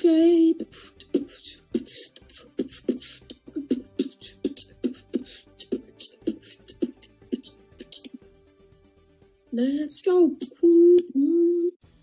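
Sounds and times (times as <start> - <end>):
low thumping beat: 1.0 - 8.2.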